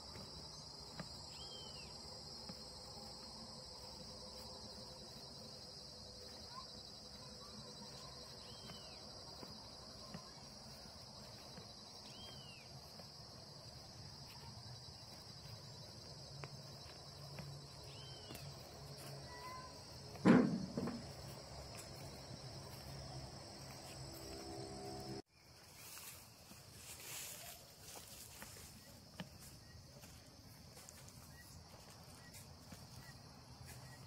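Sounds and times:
insects chirring: 0:00.0 - 0:34.0
short insect chirps: 0:14.7 - 0:30.0.

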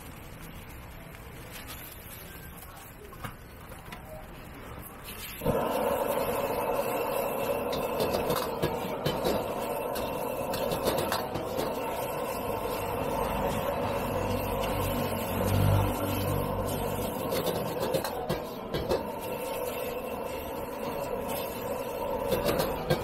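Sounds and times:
noodles sizzling in a wok: 0:04.7 - 0:23.0
gas burner rushing: 0:05.0 - 0:23.0
metal ladle scraping wok: 0:05.0 - 0:23.0.

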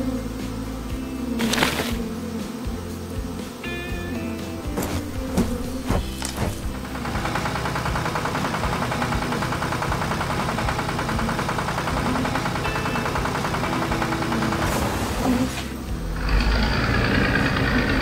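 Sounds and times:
tractor engine running: 0:04.1 - 0:18.0.

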